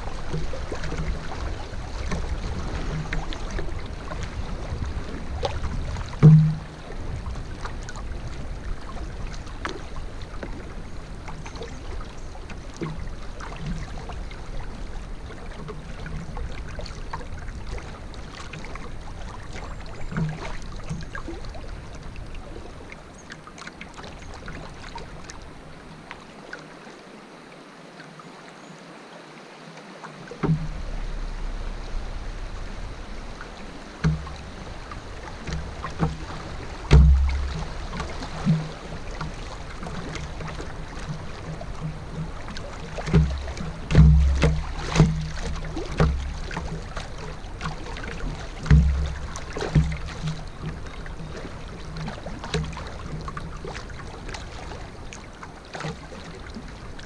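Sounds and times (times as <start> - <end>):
knocks against hull: 0.0 - 7.8, 19.5 - 21.4, 30.4 - 54.8
water noise around boat: 0.0 - 57.0
low rumbles: 30.4 - 47.6.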